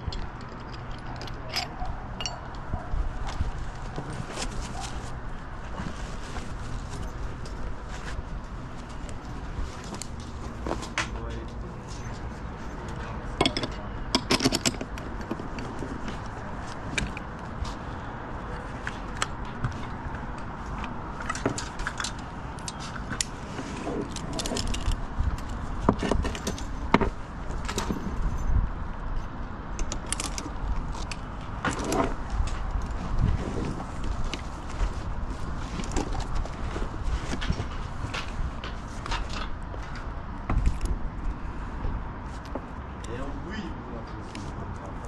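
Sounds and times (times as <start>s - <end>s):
metal carabiners clinking: 0.0s - 2.8s, 13.4s - 15.7s, 24.0s - 26.9s.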